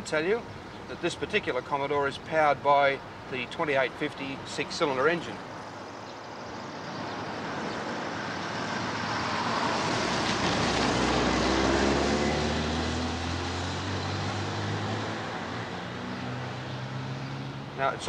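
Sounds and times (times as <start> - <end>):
car driving past: 7.3 - 17.7.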